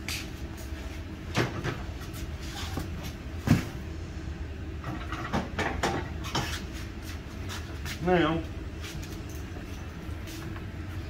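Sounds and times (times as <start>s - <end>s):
metal clanks and scrapes: 4.8s - 6.7s.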